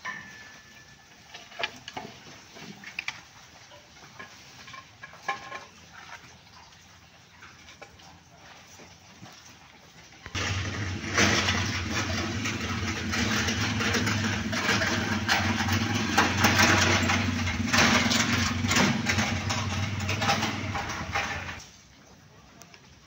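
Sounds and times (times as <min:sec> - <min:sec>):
engine running steadily: 0:10.4 - 0:21.6.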